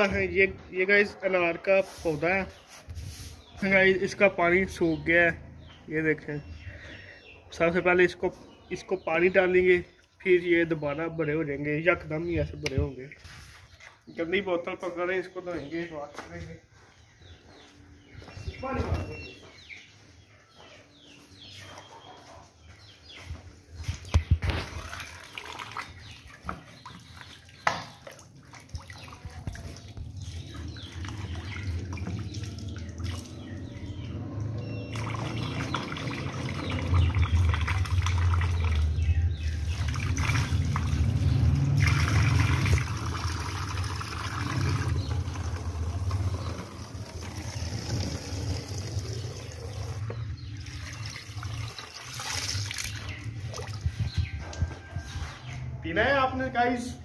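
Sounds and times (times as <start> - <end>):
tap water splashing and gurgling: 24.0 - 33.4, 34.9 - 54.1.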